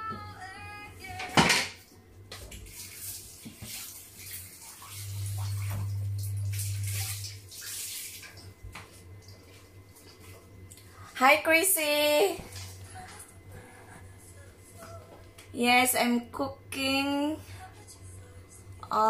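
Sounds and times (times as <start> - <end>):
low steady hum: 0.0 - 19.0
tap water splashing into sink: 2.3 - 9.6.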